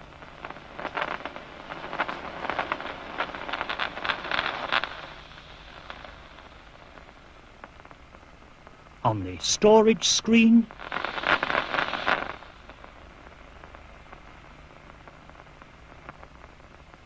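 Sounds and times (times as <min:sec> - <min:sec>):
crackle of sharp clicks: 0:00.0 - 0:08.8
faint hiss: 0:00.0 - 0:17.0.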